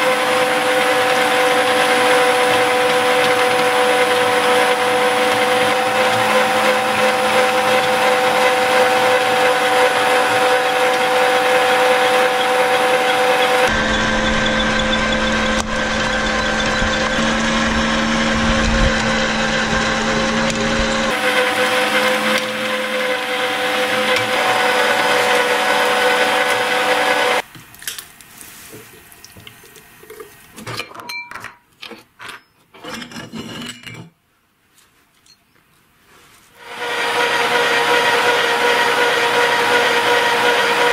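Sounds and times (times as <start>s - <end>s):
meat grinder motor running: 0.0s - 27.4s, 36.6s - 40.9s.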